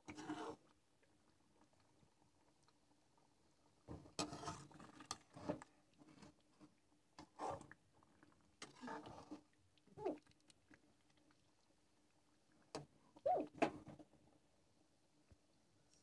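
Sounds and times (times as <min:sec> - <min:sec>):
spoon scraping metal pan: 0:04.2 - 0:04.7.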